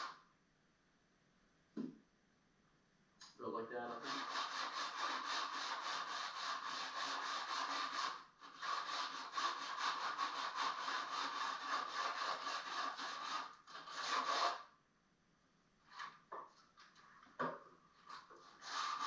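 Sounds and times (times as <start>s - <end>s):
sandpaper rasping on wood: 3.9s - 14.7s, 18.1s - 19.0s.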